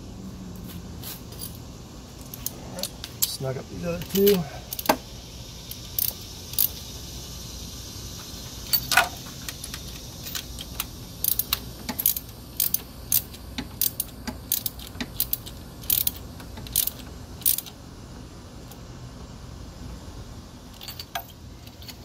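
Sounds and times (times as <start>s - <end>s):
socket ratchet clicking: 8.7s - 17.8s.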